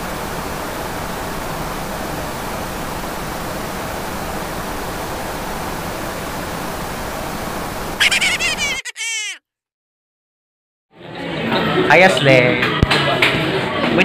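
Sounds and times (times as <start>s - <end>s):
tape static hiss: 0.0s - 8.6s.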